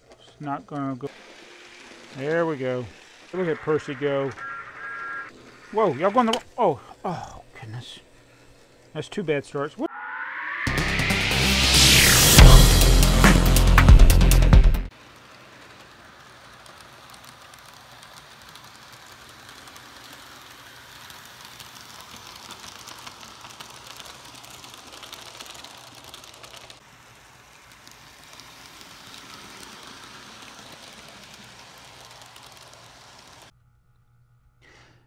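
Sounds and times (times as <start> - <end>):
wheels clicking over rail joints: 0.0 - 4.3, 5.3 - 9.8, 14.9 - 33.5
model train motor whir: 0.0 - 9.9, 14.9 - 33.5.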